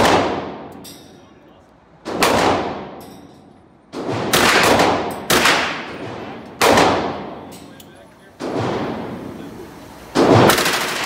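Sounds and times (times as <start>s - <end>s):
echoing gunshot decay: 0.0s - 0.8s, 2.1s - 3.0s, 3.9s - 7.5s, 8.4s - 9.3s, 10.1s - 11.0s
rifle firing automatic bursts: 10.2s - 11.0s.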